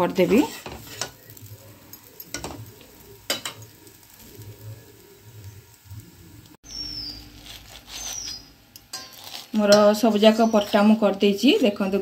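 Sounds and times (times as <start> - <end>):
metal spatula scraping pan: 0.0 - 2.6, 7.6 - 12.0
faint frying sizzle: 0.0 - 12.0.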